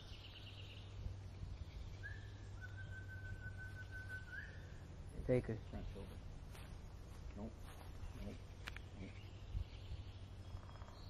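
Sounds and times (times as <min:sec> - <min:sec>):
faint long whistled note: 0:02.0 - 0:04.7.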